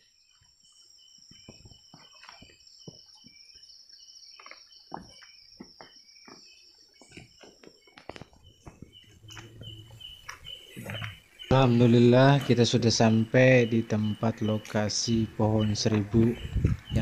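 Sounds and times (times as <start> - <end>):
insects trilling: 0.0 - 17.0
pulsed insect chirp: 0.0 - 17.0
footsteps in undergrowth: 4.4 - 11.9.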